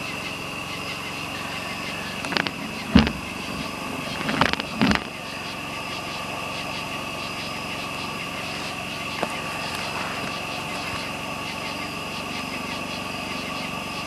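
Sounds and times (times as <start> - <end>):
high-pitched drone: 0.0 - 14.0
sharp knocks: 2.2 - 5.1.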